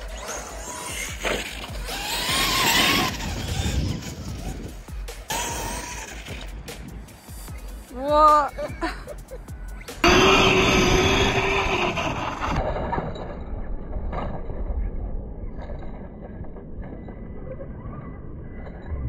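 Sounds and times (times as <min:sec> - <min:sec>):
rc car motor whine: 0:00.0 - 0:06.6, 0:10.0 - 0:12.6.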